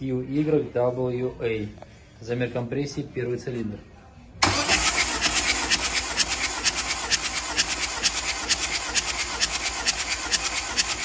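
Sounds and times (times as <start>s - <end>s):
starter motor cranking engine: 4.4s - 11.0s.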